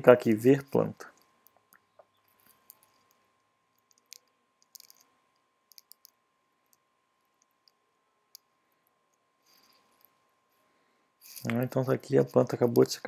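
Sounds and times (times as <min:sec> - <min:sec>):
thin steady tone: 0:00.0 - 0:13.0
soft clicks: 0:01.1 - 0:10.2.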